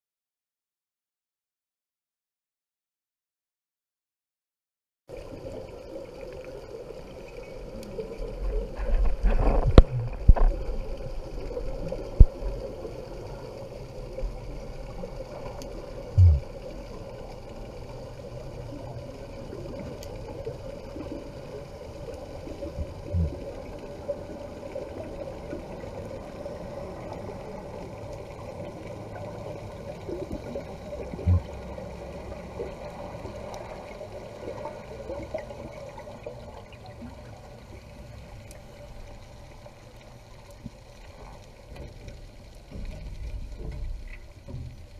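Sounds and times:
muffled underwater wash: 0:05.1 - 0:44.9
water churning: 0:08.3 - 0:38.2
low thumps: 0:16.2 - 0:16.5.

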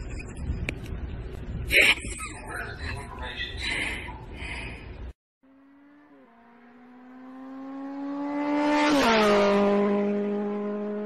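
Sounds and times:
car engine driving by: 0:05.5 - 0:11.0.

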